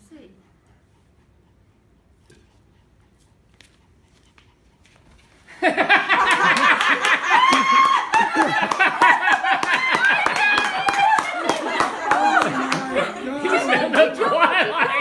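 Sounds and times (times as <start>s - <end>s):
group laughing excitedly: 5.5s - 15.0s
people clapping: 5.9s - 15.0s.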